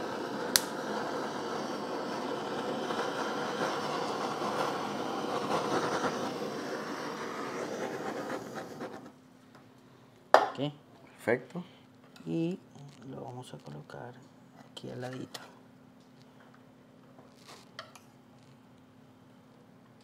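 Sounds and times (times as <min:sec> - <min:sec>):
torch flame hissing: 0:00.0 - 0:09.2.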